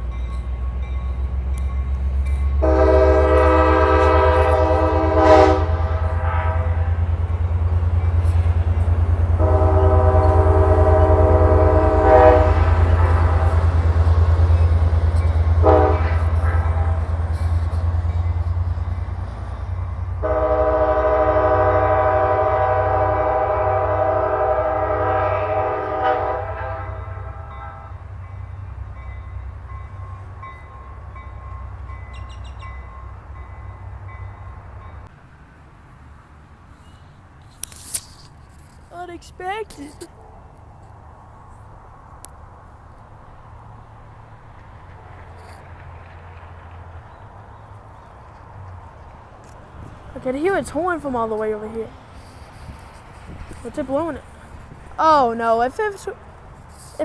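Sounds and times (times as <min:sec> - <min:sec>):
diesel engine rumble: 0:00.0 - 0:23.5
train horn blasts: 0:02.5 - 0:07.4, 0:09.2 - 0:14.2, 0:15.2 - 0:18.5, 0:19.6 - 0:28.4.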